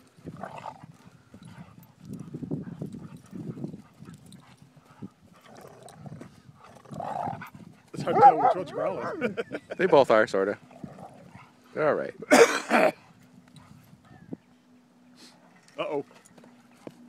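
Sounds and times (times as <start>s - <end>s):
dogs growling: 0.2s - 9.5s, 10.5s - 11.7s.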